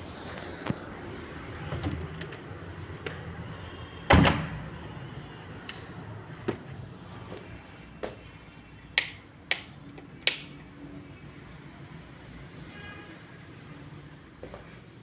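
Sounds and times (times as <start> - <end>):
door thump: 4.1 - 4.6.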